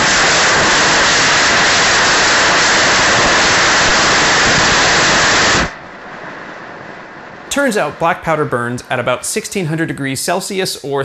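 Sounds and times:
rocket motor rushing hiss: 0.0 - 8.4.

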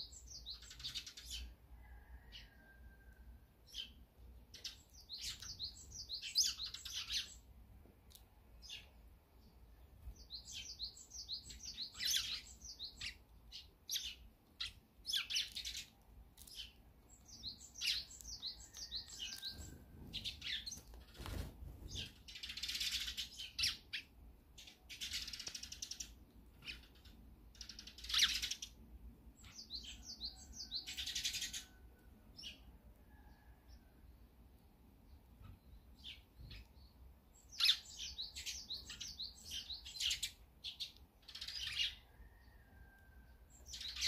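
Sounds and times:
sparrows chirping and chattering: 0.0 - 1.6, 3.6 - 7.5, 8.6 - 32.7, 34.4 - 42.6, 43.3 - 44.0
wings fluttering: 18.7 - 22.9.

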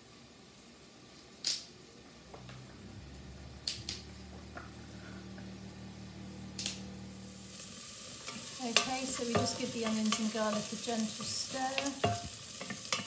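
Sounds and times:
faint low hum: 1.8 - 7.6.

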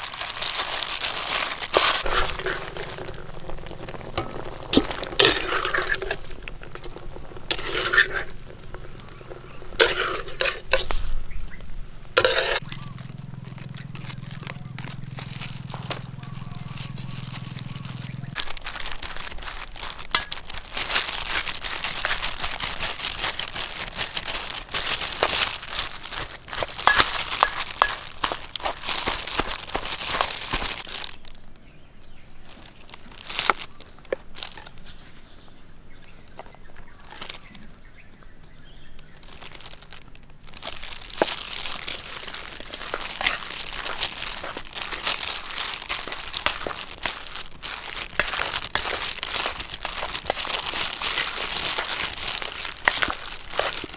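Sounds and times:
plastic glove crinkling: 0.0 - 11.6, 12.2 - 31.4, 32.4 - 35.5, 36.8 - 37.5, 38.8 - 53.9
food squashing: 0.0 - 31.4, 39.0 - 53.9
spoon scraping metal bowl: 2.0 - 11.6, 12.2 - 12.6.

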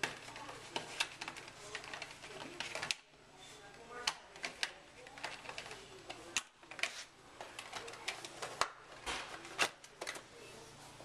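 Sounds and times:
plastic tray clicking and rattling: 0.0 - 3.0, 4.0 - 10.3.

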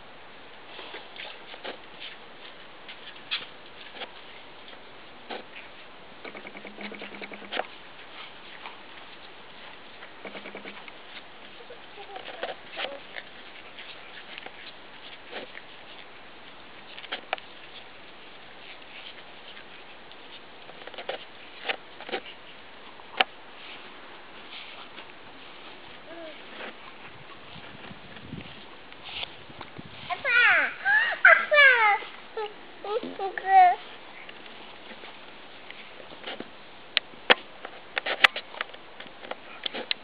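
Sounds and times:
toddler footsteps: 0.8 - 40.0
buzzing rattle: 10.2 - 10.8.

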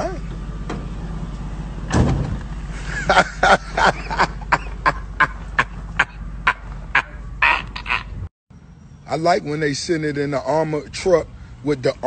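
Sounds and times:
heavy thump: 1.9 - 2.5.

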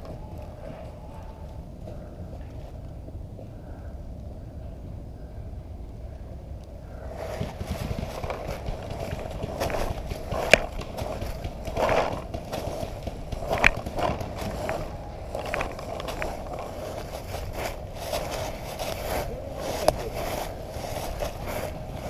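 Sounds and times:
footsteps crunching through dry leaves: 7.1 - 22.0
gear rustling and knocking: 7.1 - 22.0.

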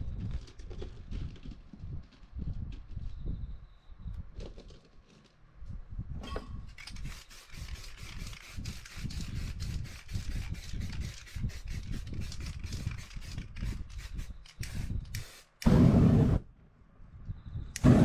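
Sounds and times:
spray paint can hissing: 6.9 - 16.4.

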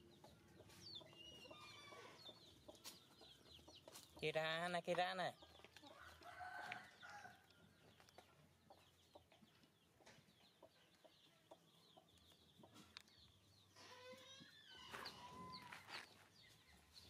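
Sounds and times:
chickens clucking and peeping: 0.0 - 17.0.

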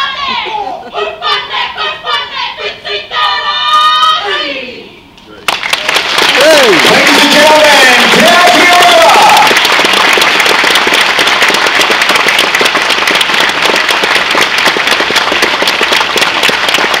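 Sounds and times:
audience applauding: 5.5 - 17.0.

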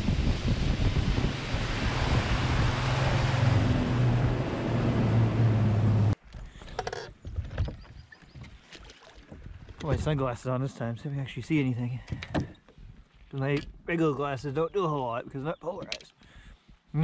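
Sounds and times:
wind rush on microphone: 0.0 - 6.1
outboard engine hum: 0.0 - 6.2.

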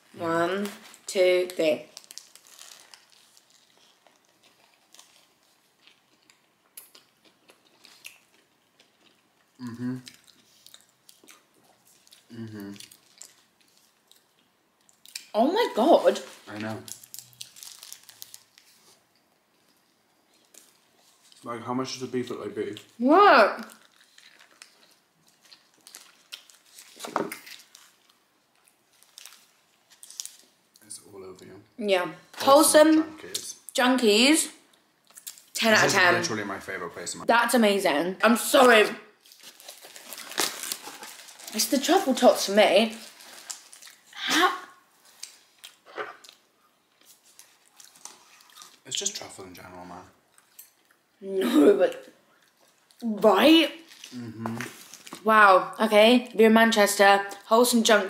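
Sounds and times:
paper wrappers rustling: 0.2 - 5.6, 15.8 - 19.0, 23.6 - 30.5, 39.2 - 44.1, 45.0 - 49.0, 53.8 - 55.4.

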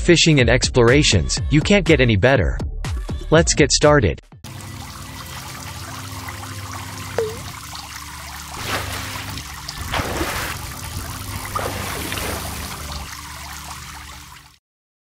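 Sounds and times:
water trickling and splashing: 4.5 - 14.6
bubbly drop sound: 7.2 - 7.5.

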